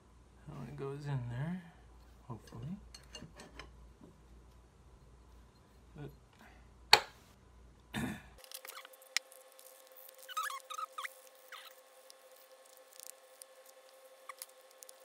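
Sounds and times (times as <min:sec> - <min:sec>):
faint steady hum: 0:00.0 - 0:15.0
short squeaks: 0:10.0 - 0:11.8.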